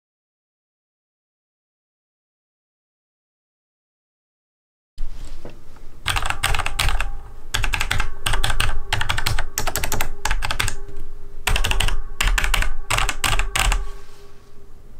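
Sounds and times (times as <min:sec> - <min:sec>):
mechanical keyboard keys clacking: 0:06.1 - 0:10.8, 0:11.5 - 0:13.8.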